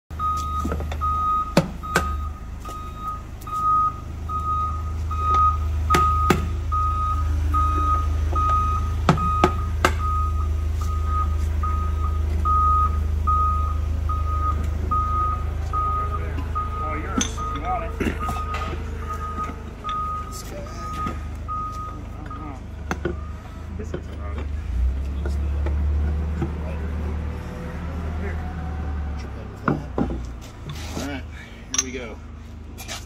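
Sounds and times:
hammer blows on barrel hoops: 0:00.1 - 0:12.0
reversing alarm beeps: 0:00.1 - 0:23.7
steady low drone: 0:02.2 - 0:29.7.

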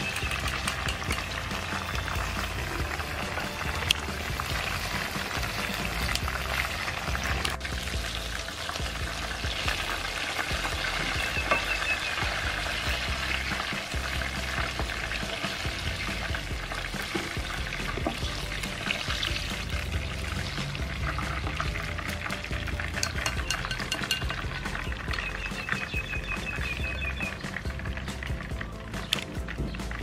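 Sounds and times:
metal ladle stirring: 0:00.0 - 0:02.3, 0:22.7 - 0:25.2
background music: 0:00.0 - 0:30.0
wings sizzling in hot oil: 0:00.0 - 0:30.0.

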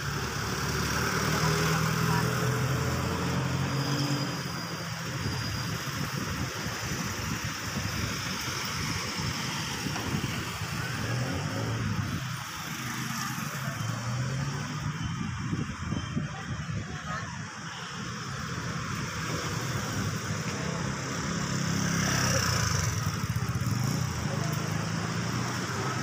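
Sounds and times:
traffic noise: 0:00.0 - 0:26.0
vehicle engines passing: 0:00.0 - 0:26.0.

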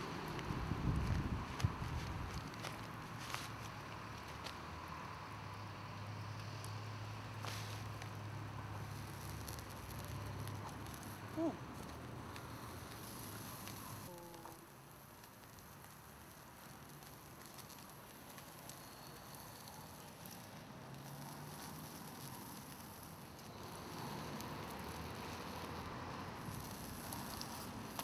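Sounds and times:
small crackles: 0:00.0 - 0:28.0
meat sizzling on a grill: 0:07.4 - 0:28.0.

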